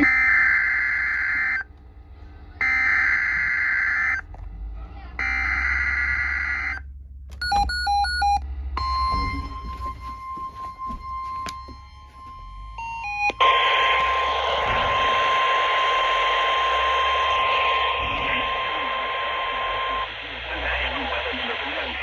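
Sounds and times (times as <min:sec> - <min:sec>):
radio static: 0:00.0 - 0:01.4, 0:13.3 - 0:22.0
weather radio alert tone: 0:00.0 - 0:01.5, 0:07.5 - 0:22.0
short electronic beeps: 0:07.4 - 0:20.4.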